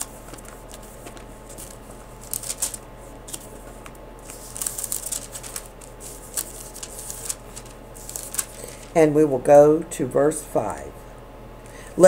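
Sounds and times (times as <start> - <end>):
thin paper pages rustling: 0.0 - 9.0.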